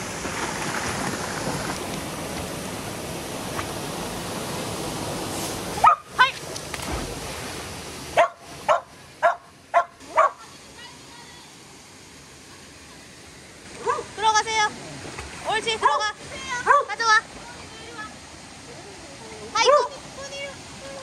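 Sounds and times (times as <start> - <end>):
waterfall and stream rushing: 0.0 - 21.0
dog barking: 5.8 - 6.1, 8.2 - 10.4, 13.8 - 14.1, 16.6 - 16.9, 19.7 - 19.9.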